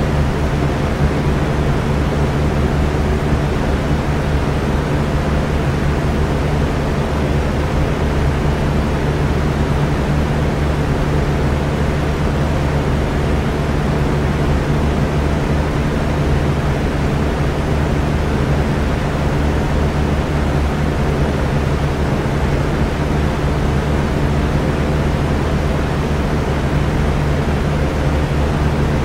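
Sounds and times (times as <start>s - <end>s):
electric fan air rush: 0.0s - 29.0s
fan motor hum: 0.0s - 29.0s.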